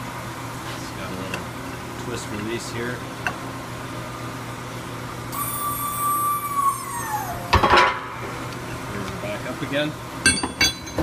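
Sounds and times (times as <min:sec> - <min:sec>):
hydraulic jack pump whining: 0:05.3 - 0:07.7.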